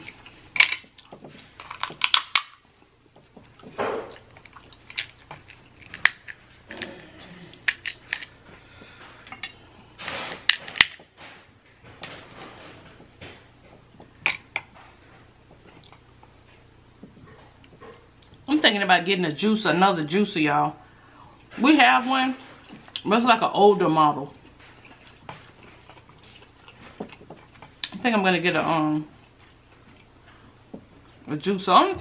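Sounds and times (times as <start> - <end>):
crab shells cracking: 0.6 - 2.6, 4.2 - 6.8.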